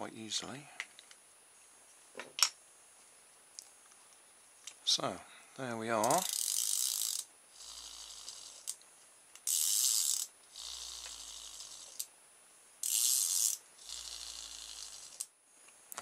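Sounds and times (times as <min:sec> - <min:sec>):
pull cord ratcheting rasp: 0:06.0 - 0:08.8, 0:09.4 - 0:12.1, 0:12.8 - 0:15.3
spring motor whirr: 0:06.0 - 0:08.8, 0:09.4 - 0:12.1, 0:12.8 - 0:15.3.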